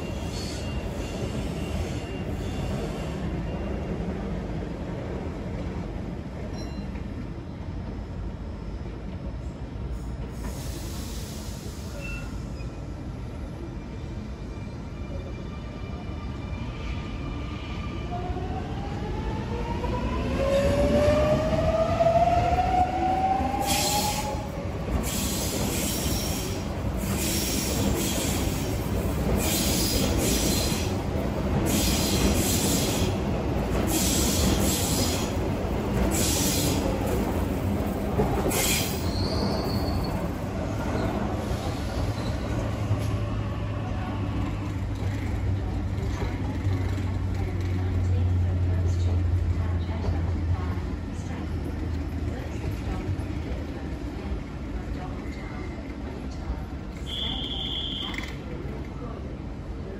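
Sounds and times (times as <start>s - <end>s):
high squeal: 38.8s - 40.2s.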